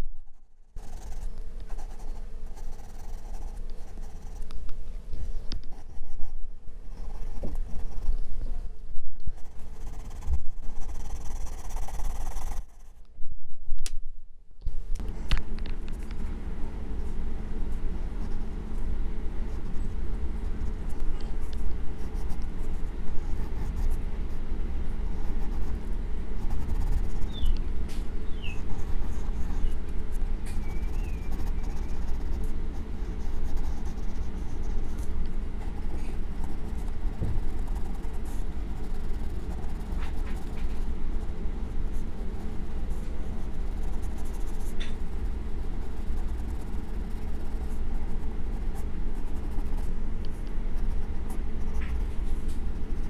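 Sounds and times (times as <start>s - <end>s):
pencil shading on paper: 30.5s - 49.9s.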